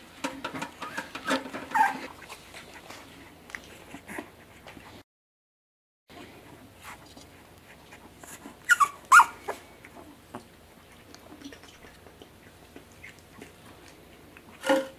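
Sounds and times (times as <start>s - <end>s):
puppy whimpering: 0.8s - 2.3s, 7.8s - 10.5s.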